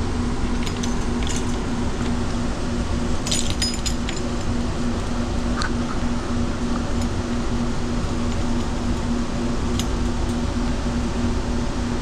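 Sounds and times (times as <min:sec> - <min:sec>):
machinery hum: 0:00.0 - 0:12.0
metal parts clinking: 0:00.5 - 0:02.1, 0:03.2 - 0:04.8.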